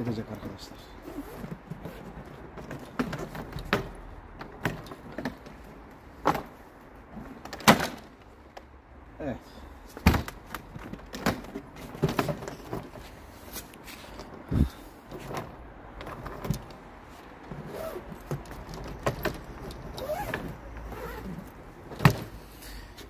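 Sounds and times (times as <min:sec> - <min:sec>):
suitcase knocks and clicks: 0:01.3 - 0:05.6, 0:06.2 - 0:08.2, 0:10.0 - 0:13.0, 0:14.5 - 0:16.8, 0:17.4 - 0:22.4.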